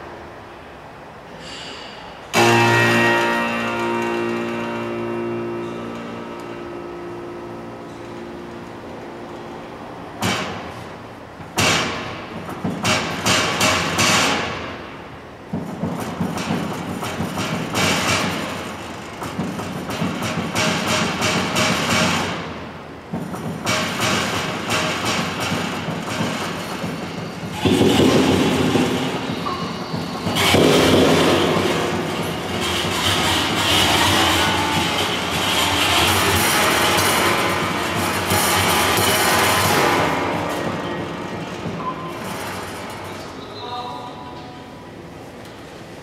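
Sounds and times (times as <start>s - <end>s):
prepared piano percussive strikes: 1.6s - 10.8s, 23.1s - 43.6s.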